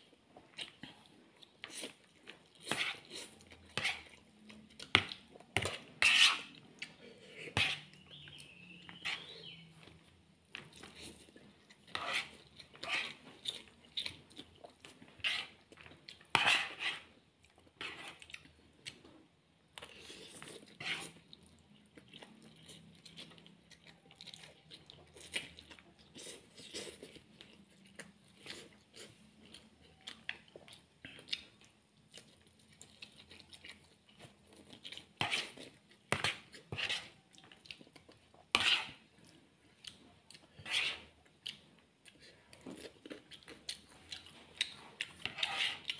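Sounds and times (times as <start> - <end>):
noodles being slurped and chewed: 0.3 - 8.3, 9.0 - 19.2, 19.8 - 45.9
fork scraping on plate: 2.7 - 4.1, 5.6 - 8.0, 9.0 - 9.3, 11.9 - 13.2, 15.2 - 15.6, 16.3 - 17.1, 17.8 - 18.3, 20.2 - 21.2, 35.2 - 37.2, 38.5 - 39.0, 40.6 - 41.2, 45.0 - 45.9.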